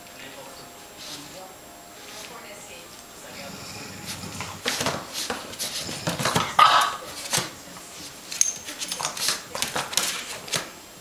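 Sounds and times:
paws scuffling and scratching: 0:00.8 - 0:10.8
dog barking or yelping: 0:06.6 - 0:07.0.

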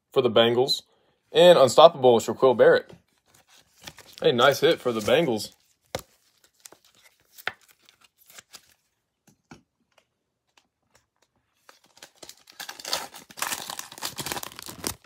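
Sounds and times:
wrapper crinkling and tearing: 0:03.3 - 0:08.9, 0:11.6 - 0:15.0
cards clicking and tapping: 0:05.8 - 0:08.6.

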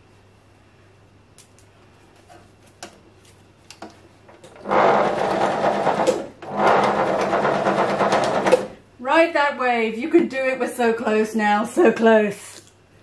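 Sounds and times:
sewing machine stitching: 0:04.4 - 0:08.8.

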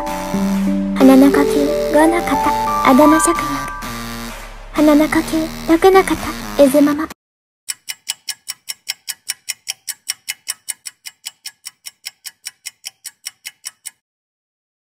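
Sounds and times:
rapid even ticking: 0:07.7 - 0:14.0.

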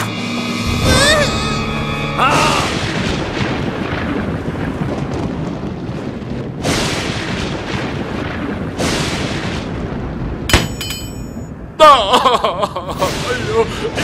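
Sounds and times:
dense rumbling booming noise: 0:00.7 - 0:10.5.

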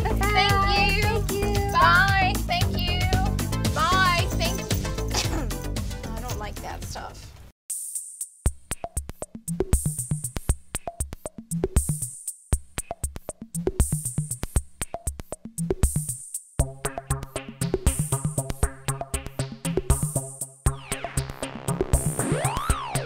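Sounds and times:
fast drum-machine beat: 0:00.0 - 0:05.9, 0:07.7 - 0:23.0
bass line: 0:00.0 - 0:06.9, 0:16.6 - 0:23.0.

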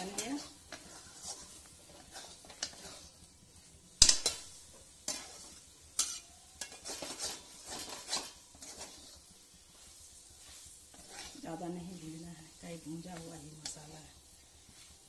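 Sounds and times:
spatula scraping paste in pan: 0:00.0 - 0:03.2, 0:05.0 - 0:13.9.

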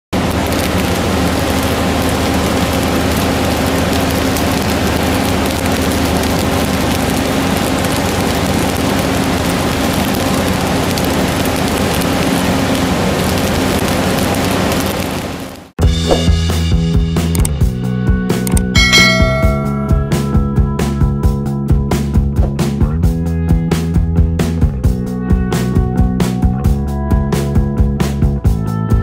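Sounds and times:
rail welder arc crackling: 0:00.2 - 0:15.8, 0:18.5 - 0:20.3.

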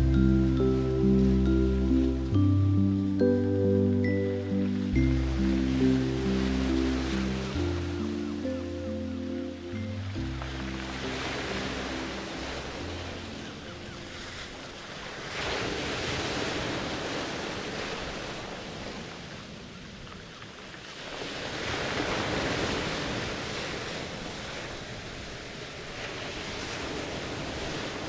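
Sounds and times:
low sustained music notes: 0:00.0 - 0:15.1
rushing surf-like noise: 0:00.0 - 0:19.8.

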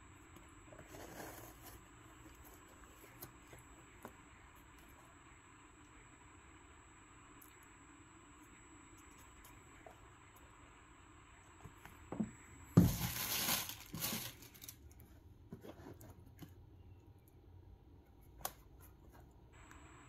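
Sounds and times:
tissue paper crinkling: 0:12.8 - 0:14.9.

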